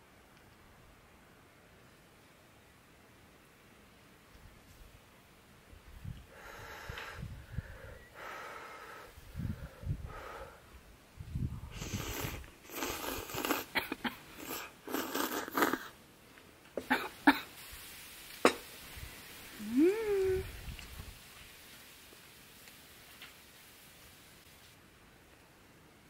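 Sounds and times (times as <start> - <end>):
person slurping noodles: 11.7 - 16.0.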